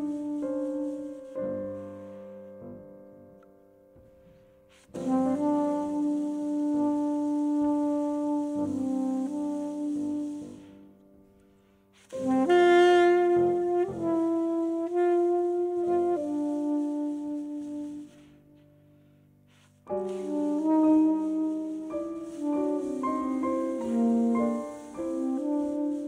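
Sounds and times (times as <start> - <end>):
soprano saxophone long notes: 0.0 - 1.3, 5.0 - 11.0, 12.2 - 18.6, 20.1 - 26.0
grand piano: 0.0 - 26.0.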